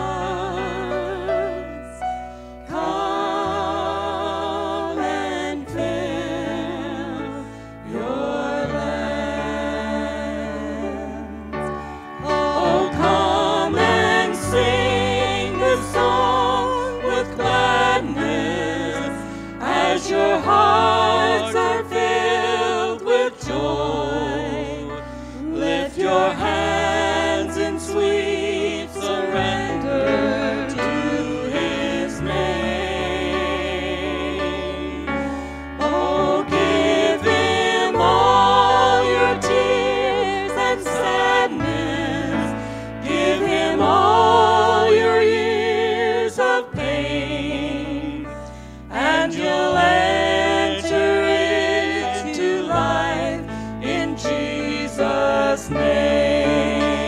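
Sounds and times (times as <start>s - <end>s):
keyboard: 0.0s - 57.0s
electric bass: 2.6s - 45.2s.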